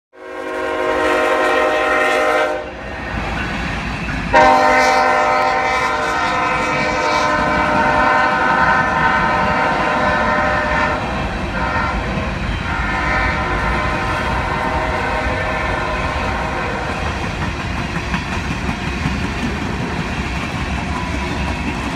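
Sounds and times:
locomotive air horn blowing: 0.2 - 2.8, 4.3 - 17.0
train cars rumbling on rails: 0.3 - 21.9.

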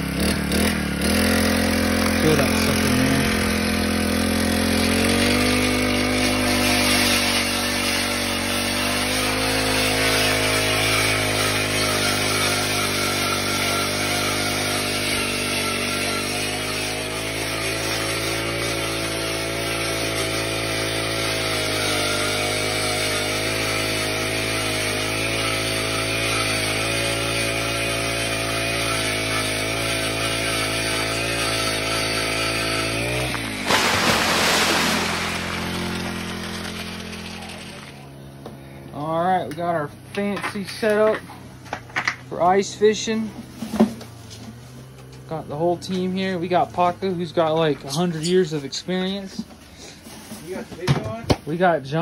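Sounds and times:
ice auger engine running: 0.0 - 39.1.

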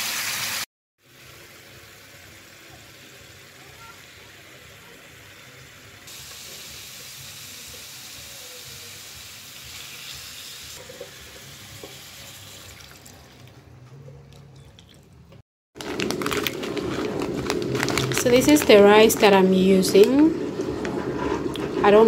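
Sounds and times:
stew sizzling in a pan: 0.0 - 12.5.

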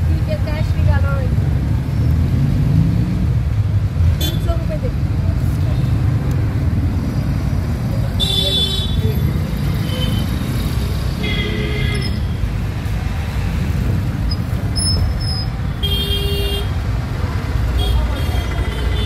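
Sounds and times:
road traffic rumble: 0.0 - 19.0.

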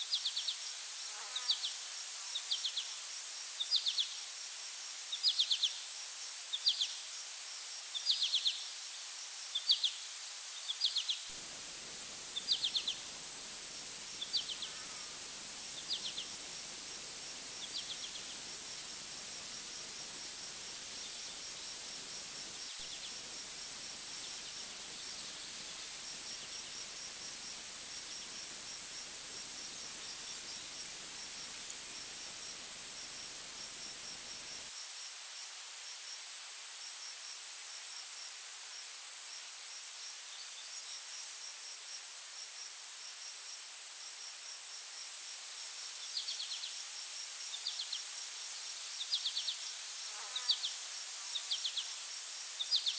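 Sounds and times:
cricket-like chirping: 9.4 - 35.0, 44.2 - 52.9
insects high-pitched drone: 10.9 - 34.8.

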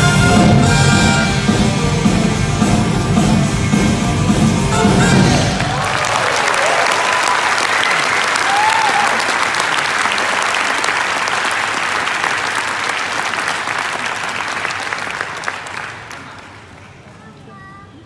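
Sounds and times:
music: 0.0 - 6.0
audience cheering: 5.0 - 16.4
audience applauding: 5.2 - 17.2.

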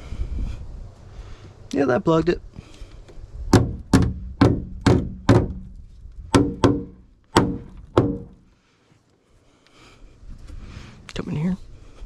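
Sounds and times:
hammer striking metal hull: 3.5 - 5.7, 6.3 - 8.4.

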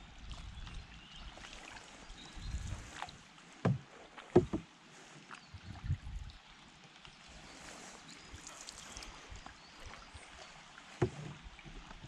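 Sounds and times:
hollow knocks on a canoe hull: 3.6 - 4.7, 10.9 - 12.0.

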